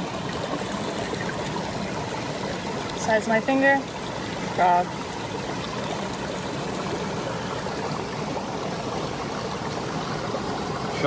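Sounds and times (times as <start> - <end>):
stream water rushing: 0.0 - 11.0.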